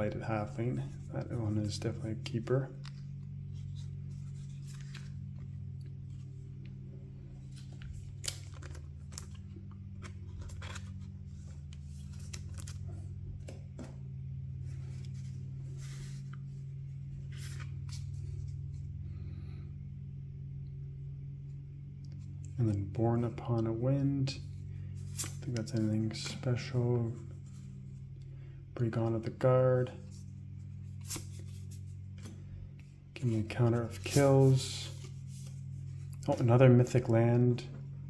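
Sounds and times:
steady low hum: 0.0s - 38.0s
plastic sleeve crinkling: 7.4s - 13.0s.

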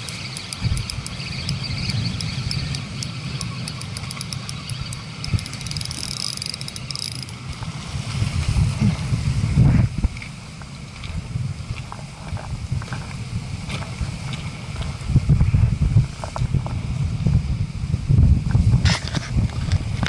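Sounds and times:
fishing reel ticking: 0.0s - 7.8s
reel whirring: 0.0s - 8.2s
wind buffeting microphone: 0.0s - 20.0s.

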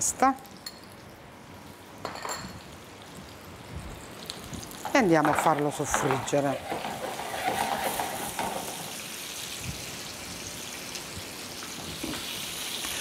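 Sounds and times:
meat sizzling in frying pan: 2.6s - 13.0s.

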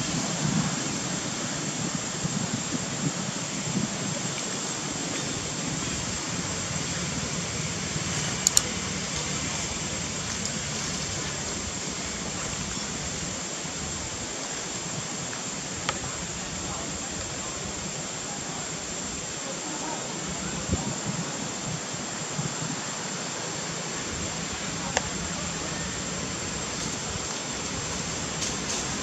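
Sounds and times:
sharp clicks: 8.4s - 8.7s.

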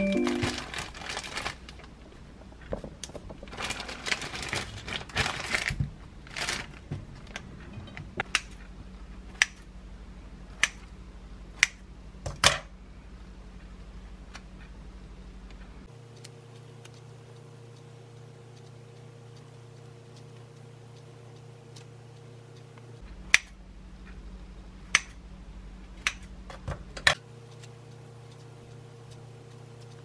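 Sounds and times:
low steady hum: 0.0s - 30.0s
plastic bag crinkling: 0.1s - 1.9s, 3.4s - 6.9s.

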